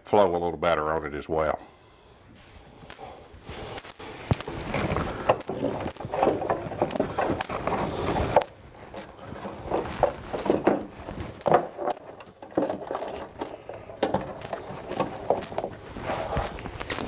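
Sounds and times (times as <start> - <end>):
rustling scrape: 3.4 - 17.0
knocks and clicks: 4.3 - 17.0.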